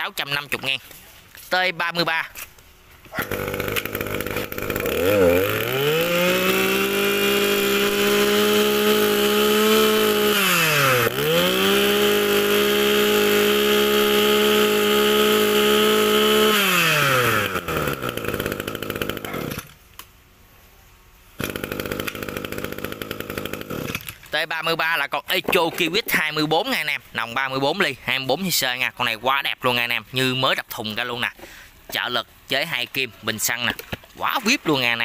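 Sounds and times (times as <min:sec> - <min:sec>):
two-stroke brush cutter engine revving: 0:03.1 - 0:19.8, 0:21.4 - 0:24.3.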